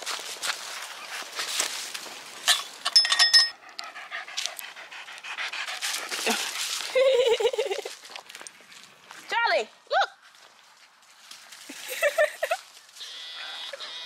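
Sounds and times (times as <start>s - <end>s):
rustling over dry leaves: 0.0s - 2.9s, 5.6s - 13.8s
small dog panting: 3.5s - 7.0s.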